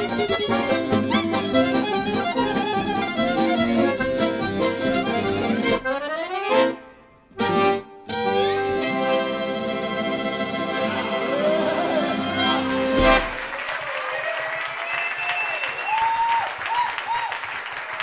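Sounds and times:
fiddle music: 0.0s - 13.5s
audience applause: 11.2s - 18.0s.

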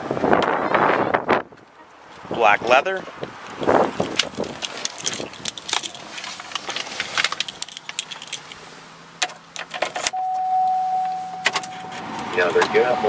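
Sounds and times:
car engine starting and running: 3.2s - 13.0s
keys jangling and clicking: 7.4s - 8.6s
constant high tone: 10.1s - 13.0s.

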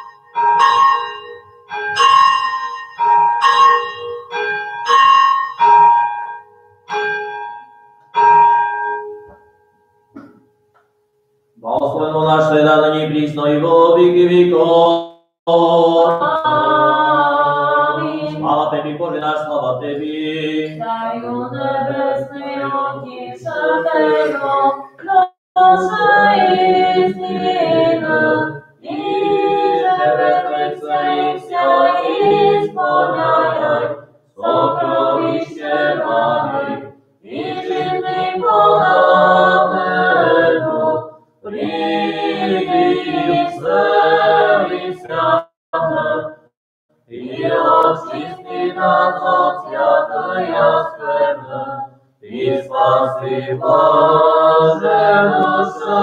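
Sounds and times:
unaccompanied liturgical chant: 11.6s - 56.0s.

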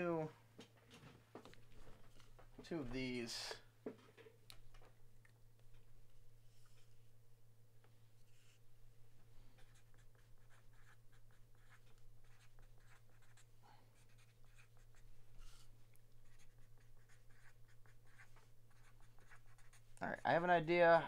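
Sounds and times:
low electrical hum: 0.0s - 21.0s
pen scratching on paper: 9.6s - 20.0s.

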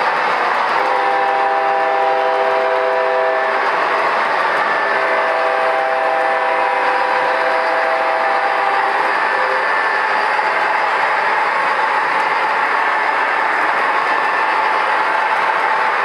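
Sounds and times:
model train wheels rolling: 0.0s - 16.0s
train horn blast: 0.8s - 3.7s, 4.8s - 9.9s.

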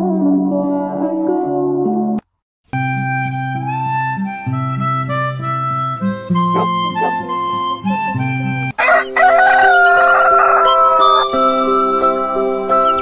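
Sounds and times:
background music: 2.8s - 13.0s
rooster crowing: 8.7s - 11.4s.

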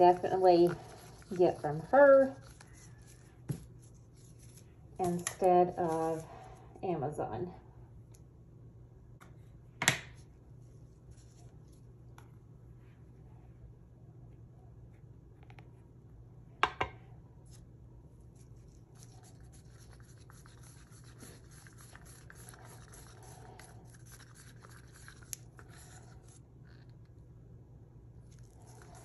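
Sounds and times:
stick scraping powder in a cup: 0.0s - 6.3s, 18.4s - 26.9s, 28.3s - 29.0s.

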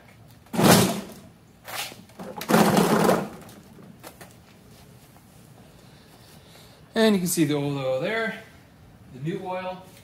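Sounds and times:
mower scraping and clunking on concrete: 2.2s - 3.6s.

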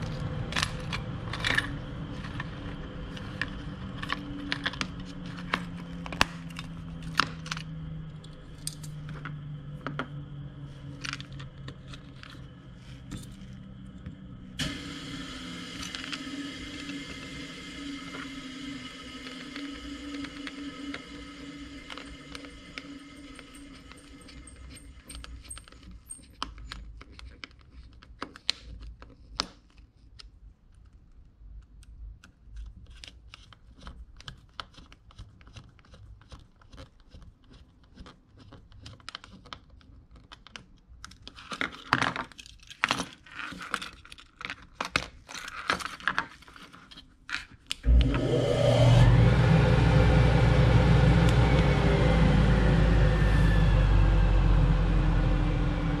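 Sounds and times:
dust collector motor humming: 14.6s - 25.2s, 47.9s - 56.0s.

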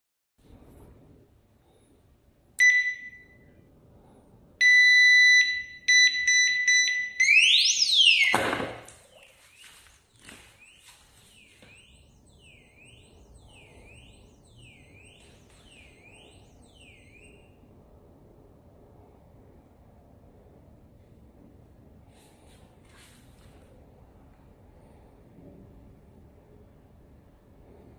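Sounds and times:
electronic alarm beeps: 2.6s - 3.5s, 4.6s - 17.7s
muffled underwater alarm chirp: 4.6s - 8.4s, 10.6s - 17.5s
alarm siren sweeping: 4.6s - 17.8s.

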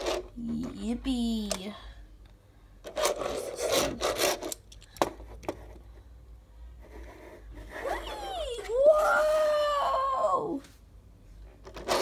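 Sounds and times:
toy car scraping across wooden table: 2.9s - 4.6s, 11.6s - 12.0s.

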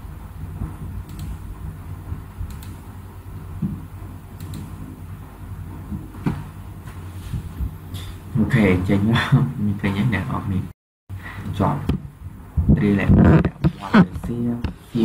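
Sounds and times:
low background hum: 0.0s - 15.0s
faint clicks: 2.5s - 2.8s, 4.4s - 4.7s.

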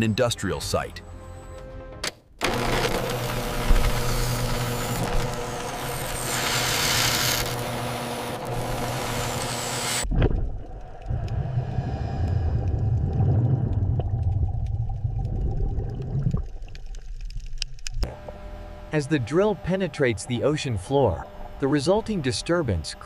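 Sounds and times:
drill bit grinding whine: 2.4s - 10.1s
underwater drilling rumble: 10.0s - 18.5s.

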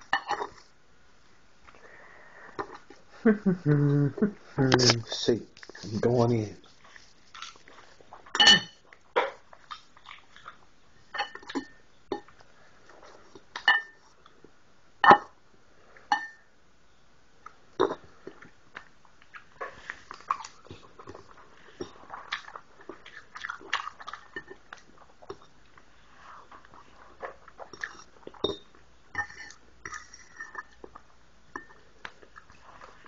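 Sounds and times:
chewing: 6.6s - 10.7s, 17.4s - 33.0s
cutlery clinking on plate: 8.4s - 8.8s.

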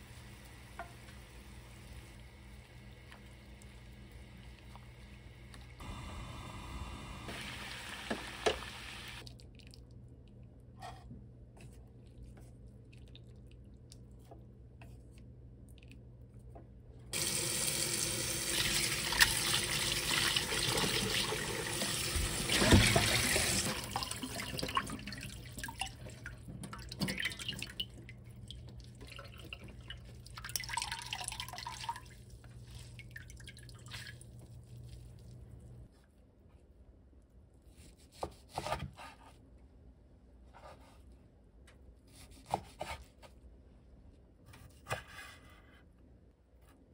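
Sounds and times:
kitchen tap running: 7.2s - 9.2s, 17.2s - 32.1s
water splashing and dripping: 18.4s - 34.5s.

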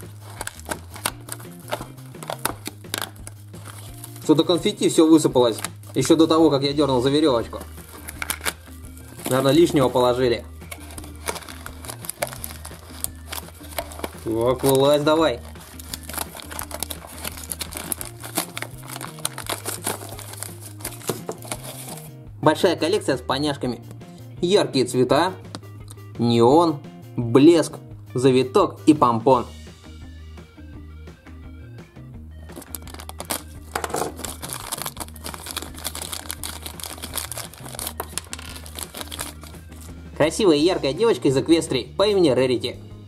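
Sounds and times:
plastic wrapping crinkling: 0.0s - 4.6s, 7.4s - 10.1s, 10.7s - 22.1s, 32.5s - 39.9s
soft background music: 0.0s - 43.0s.

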